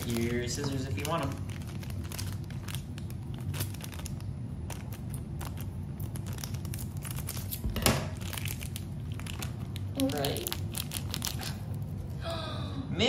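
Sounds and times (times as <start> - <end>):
foil crinkling: 0.0 - 12.0.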